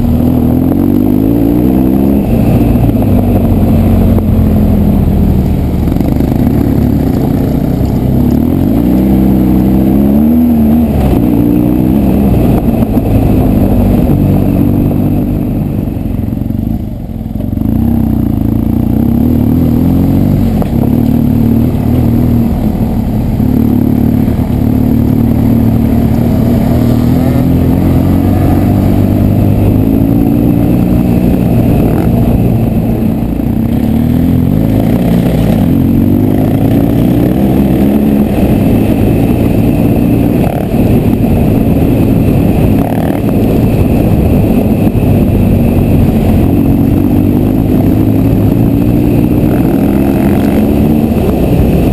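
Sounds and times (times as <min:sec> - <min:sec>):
motorcycle engine revving: 0:00.0 - 0:51.9.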